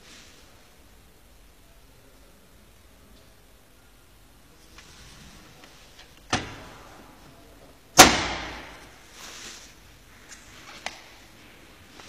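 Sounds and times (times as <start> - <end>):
tumble dryer door slamming: 6.3 - 6.8, 8.0 - 8.8.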